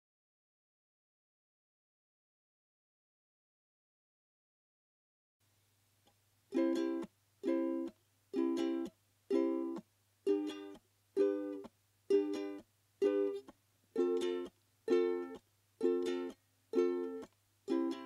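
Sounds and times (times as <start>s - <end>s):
ukulele strumming short chords: 6.5s - 18.0s.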